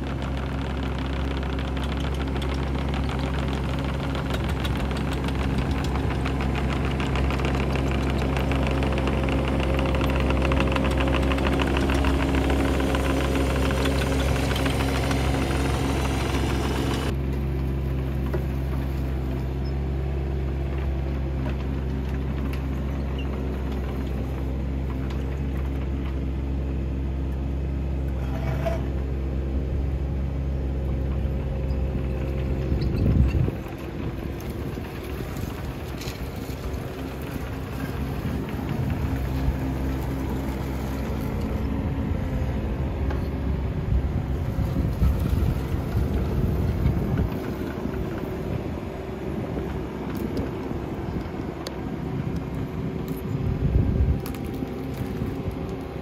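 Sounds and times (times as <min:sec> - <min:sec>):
mini excavator diesel engine: 0:00.0 - 0:56.0.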